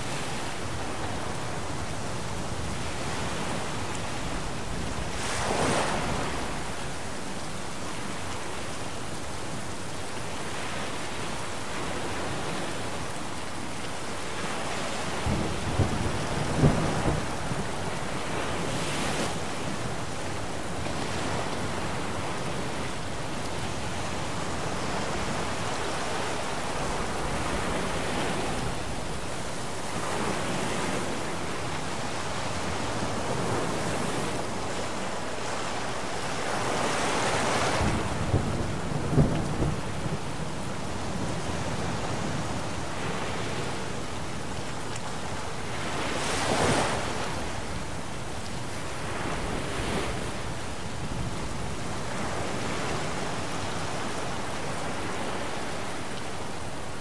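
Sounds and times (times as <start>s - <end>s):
rain and wind hissing: 0.0s - 57.0s
waves breaking: 0.0s - 57.0s
thunder rumbling and cracking: 37.7s - 42.4s.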